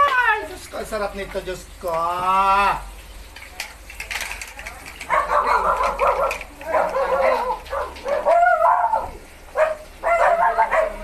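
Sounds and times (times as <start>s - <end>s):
dogs whining and yipping: 5.0s - 11.0s.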